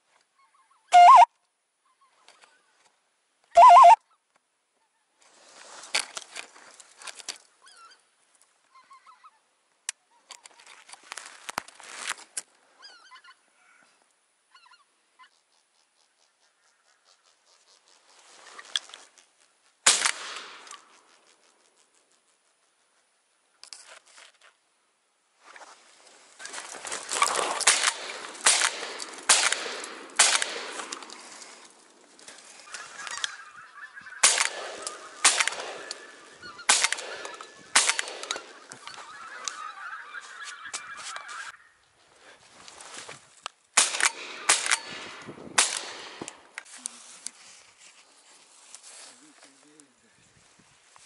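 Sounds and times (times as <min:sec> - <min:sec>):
geese honking: 0:01.0 - 0:01.3, 0:03.6 - 0:04.0, 0:32.6 - 0:41.6.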